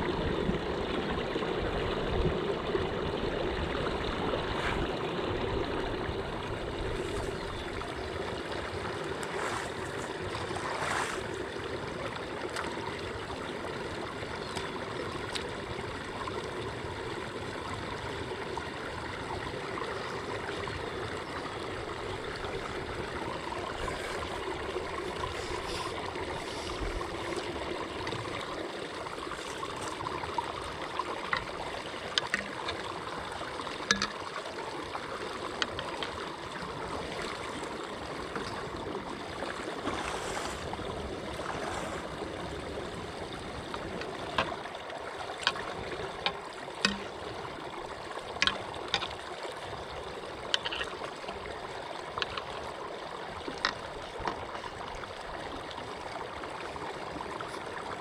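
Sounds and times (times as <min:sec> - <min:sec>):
water draining into a pipe: 0:21.1 - 0:40.0, 0:43.1 - 0:58.0
sharp clicks and knocks: 0:33.9 - 0:34.2.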